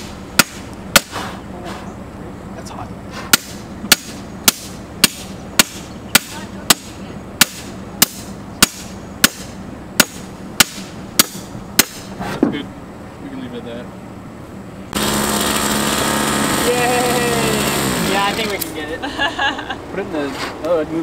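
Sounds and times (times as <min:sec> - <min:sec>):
post driver striking metal post: 0:00.0 - 0:01.4, 0:03.3 - 0:12.2.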